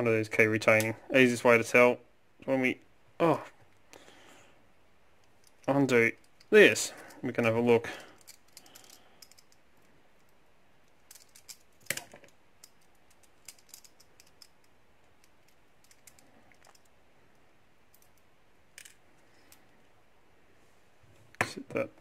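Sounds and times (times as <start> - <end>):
small metallic clicks and taps: 8.2 - 16.9.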